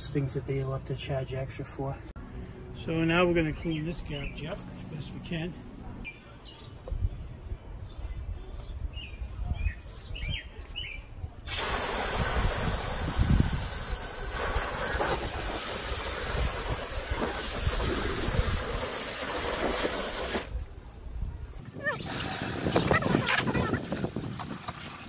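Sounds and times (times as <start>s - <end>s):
hose water spraying on metal: 11.5s - 20.6s.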